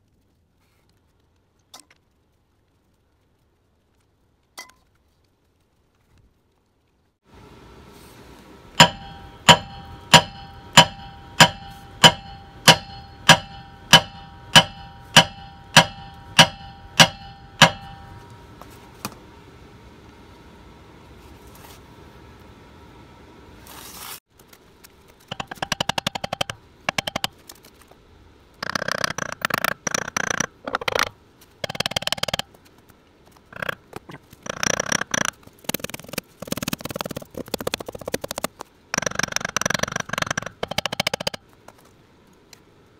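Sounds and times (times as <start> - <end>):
hammer blows on metal: 8.8 - 18.4
rapid clicking of a tool: 34.4 - 41.4.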